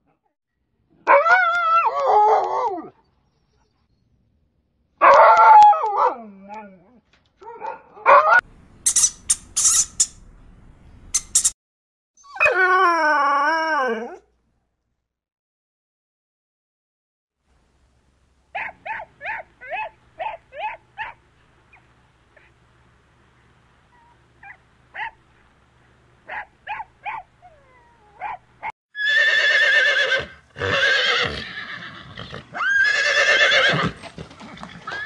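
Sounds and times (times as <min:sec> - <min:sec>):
small dog yipping: 0:18.6 - 0:21.8, 0:23.9 - 0:25.2, 0:26.3 - 0:28.4
horses whinnying: 0:29.0 - 0:35.0.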